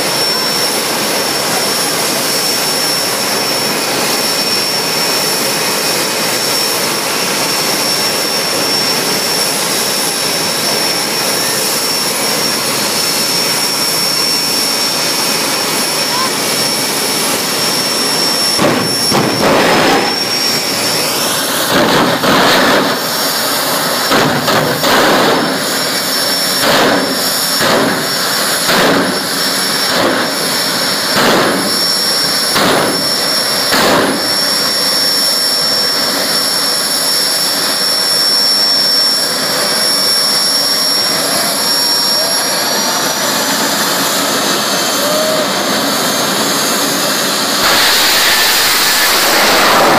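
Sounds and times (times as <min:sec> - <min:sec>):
jet engine whining: 0:00.0 - 0:49.9
loud blasts: 0:14.8 - 0:34.7, 0:47.4 - 0:49.9.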